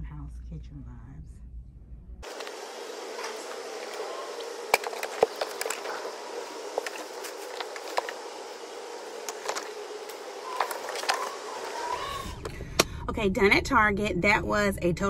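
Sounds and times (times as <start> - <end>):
steady hum: 1.6 - 15.0
baskets knocking and clattering: 2.3 - 8.6, 9.2 - 12.4
plastic bags rustling: 2.3 - 12.4.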